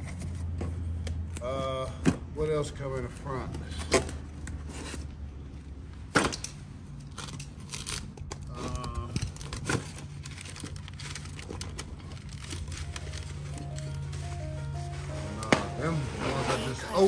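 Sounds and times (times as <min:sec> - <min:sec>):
packaging rustling and tearing: 0:07.1 - 0:14.6.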